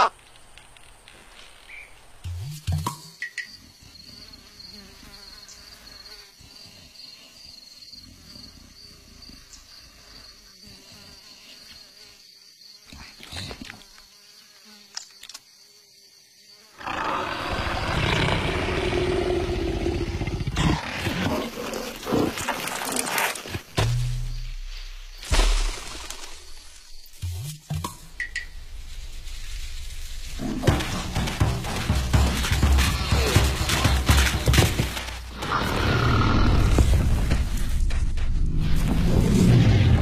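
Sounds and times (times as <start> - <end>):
rough animal roar: 16.8 - 23.3, 35.3 - 37.3.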